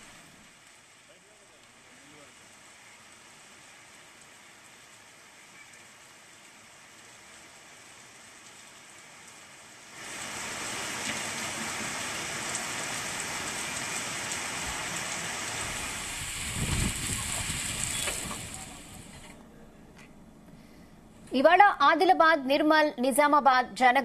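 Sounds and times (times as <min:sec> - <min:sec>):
heavy rain on a street: 0:00.0 - 0:19.4.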